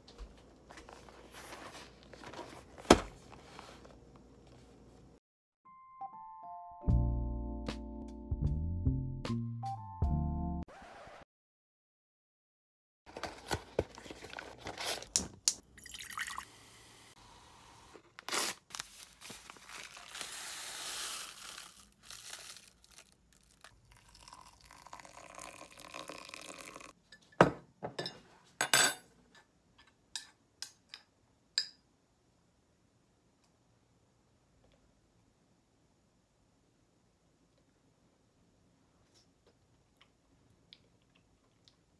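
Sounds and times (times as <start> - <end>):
liquid pouring: 15.7 - 16.5, 22.9 - 26.9
oats poured from paper packet: 18.3 - 23.8.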